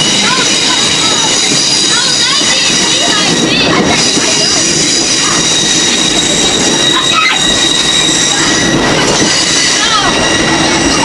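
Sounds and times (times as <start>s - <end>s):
high-pitched wheel squeal: 0.0s - 11.0s
train wheels rumbling on rail: 0.0s - 11.0s.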